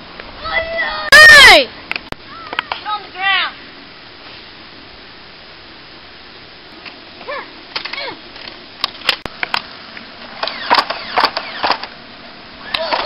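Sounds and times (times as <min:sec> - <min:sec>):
steady hiss: 0:00.0 - 0:12.7
children shouting: 0:00.4 - 0:02.8
foam dart blasters firing: 0:10.4 - 0:11.9.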